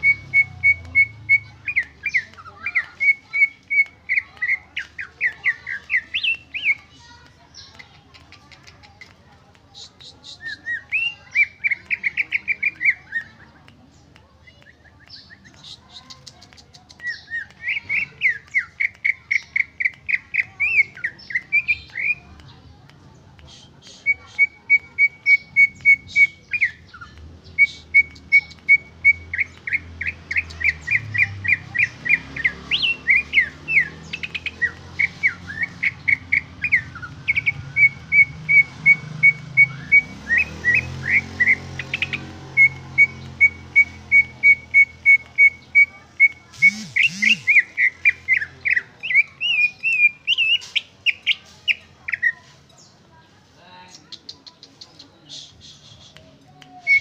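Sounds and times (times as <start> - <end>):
bird singing: 0.0 - 6.9, 23.9 - 53.0.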